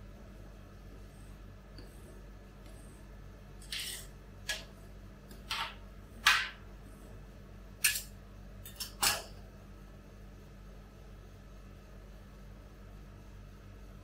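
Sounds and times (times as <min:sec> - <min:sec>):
spatulas scraping metal plate: 0:03.6 - 0:04.6.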